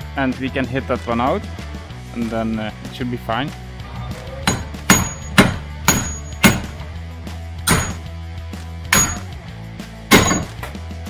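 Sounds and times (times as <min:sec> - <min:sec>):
hammer striking metal: 0:04.4 - 0:06.8, 0:07.7 - 0:08.1, 0:08.9 - 0:09.3, 0:10.1 - 0:10.8.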